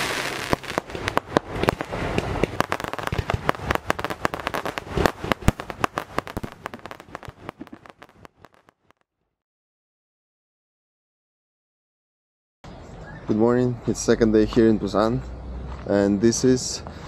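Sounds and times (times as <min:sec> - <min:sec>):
firecrackers cracking: 0:00.0 - 0:09.1.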